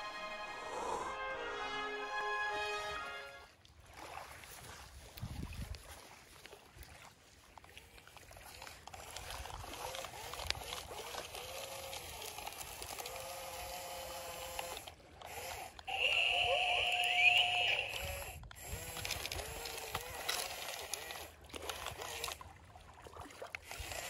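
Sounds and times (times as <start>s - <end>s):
toy electric motors whining: 8.9s - 22.4s, 23.6s - 24.0s.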